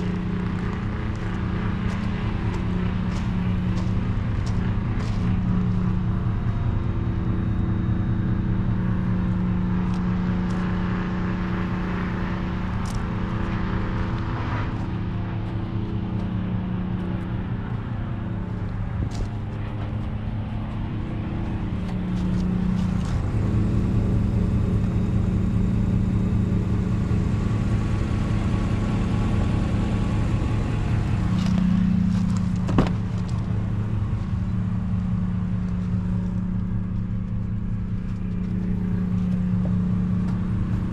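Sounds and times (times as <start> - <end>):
pickup engine idling: 0.0 - 40.9.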